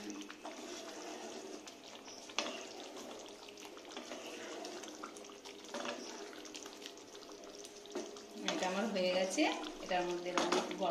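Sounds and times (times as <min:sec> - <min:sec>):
curry bubbling in a pan: 0:00.0 - 0:10.9
spatula stirring: 0:00.0 - 0:10.9.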